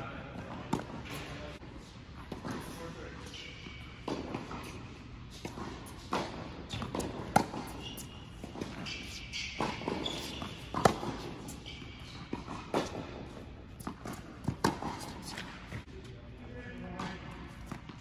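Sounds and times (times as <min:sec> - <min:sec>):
racket striking tennis ball: 0:00.5 - 0:01.3, 0:02.2 - 0:15.9
ball bouncing: 0:05.4 - 0:13.0
shoe squeaks: 0:06.7 - 0:12.9.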